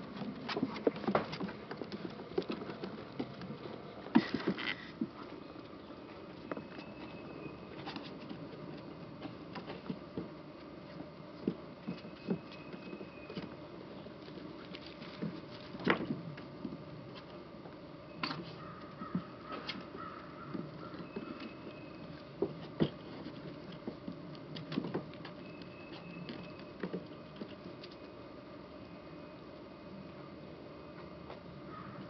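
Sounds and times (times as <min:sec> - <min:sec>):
puppies paws pattering: 0:00.0 - 0:13.6, 0:18.2 - 0:28.1
faint squeaks: 0:02.0 - 0:08.4, 0:11.8 - 0:14.1, 0:18.0 - 0:23.5, 0:25.3 - 0:28.2.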